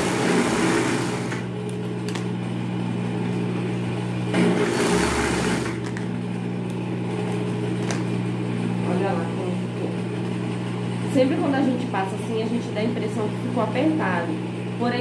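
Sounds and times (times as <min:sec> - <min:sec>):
sewing machine stitching: 0:00.0 - 0:01.5, 0:04.3 - 0:05.8.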